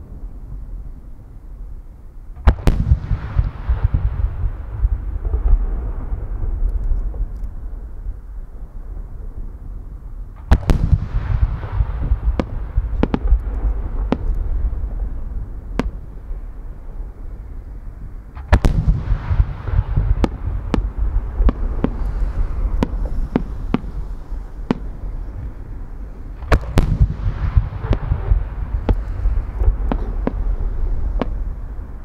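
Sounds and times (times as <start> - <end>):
sharp firework cracks: 2.4 - 7.6, 10.4 - 15.0, 15.7 - 16.3, 18.3 - 25.7, 26.3 - 31.8
firework booms with rumble: 2.4 - 7.9, 10.4 - 16.7, 18.3 - 32.0.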